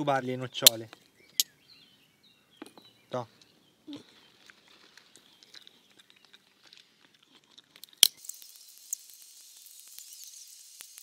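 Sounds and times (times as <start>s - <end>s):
nut shells cracking: 4.0s - 11.0s.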